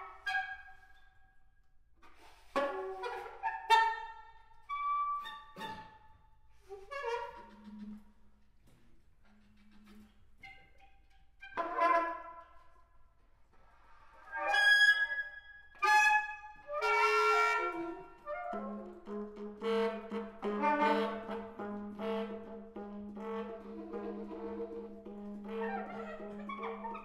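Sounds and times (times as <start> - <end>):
saxophones playing free jazz: 15.8 - 27.0.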